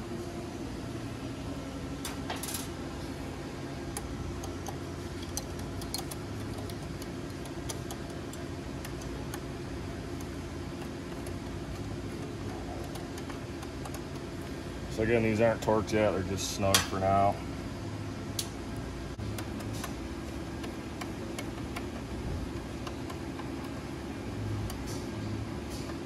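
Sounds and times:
low shop hum: 0.0s - 26.0s
socket wrench clicks and taps: 3.9s - 9.4s, 12.8s - 14.3s, 20.6s - 22.1s.

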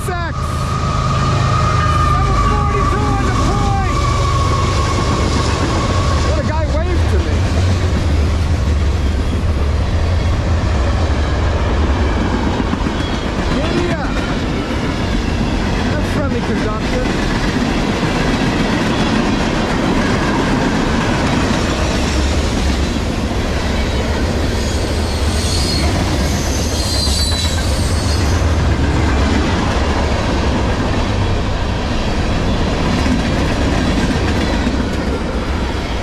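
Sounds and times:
train wheels rumbling on rail: 0.0s - 36.0s
wheel squeal: 0.6s - 6.4s, 24.6s - 28.5s.

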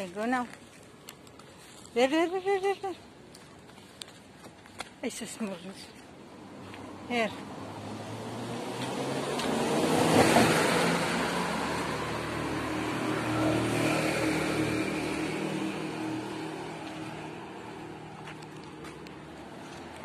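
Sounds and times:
car driving past: 7.5s - 18.1s.

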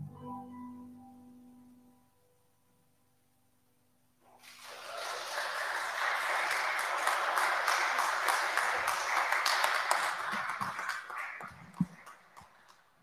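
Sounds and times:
congregation applauding: 4.3s - 13.0s.

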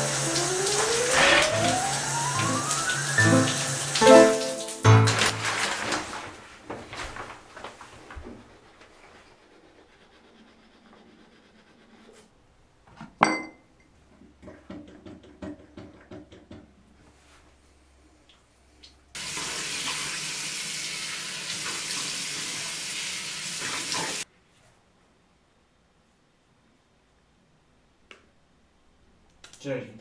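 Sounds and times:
sink tap running into basin: 0.0s - 5.6s.

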